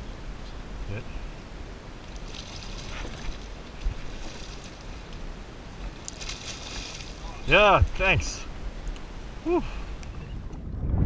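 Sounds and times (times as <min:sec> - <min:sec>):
wind rumbling on microphone: 0:00.0 - 0:11.0
fish splashing: 0:02.0 - 0:05.2, 0:05.8 - 0:07.4.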